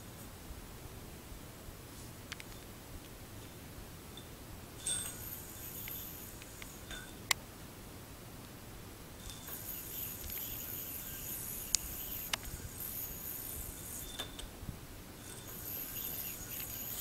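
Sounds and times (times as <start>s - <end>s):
yo-yo whirring on string: 4.8s - 7.3s, 9.2s - 14.5s, 15.2s - 17.0s
sharp yo-yo clicks: 4.8s - 7.4s, 9.2s - 14.5s, 15.2s - 17.0s.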